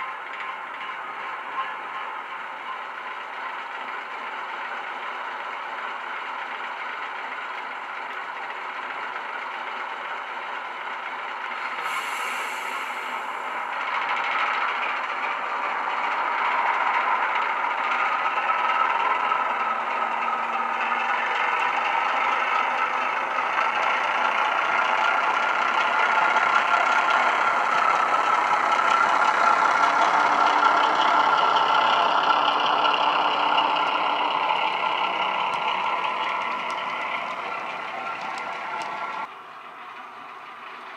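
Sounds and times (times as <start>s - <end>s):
diesel engine sound from small speaker: 9.3s - 40.9s.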